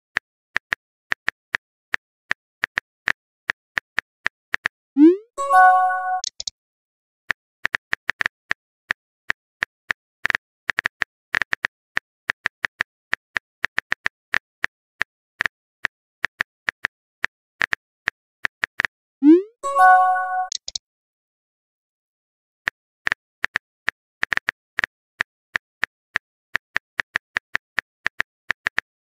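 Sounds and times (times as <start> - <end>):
phone keyboard tap clicks: 20.4 - 20.8.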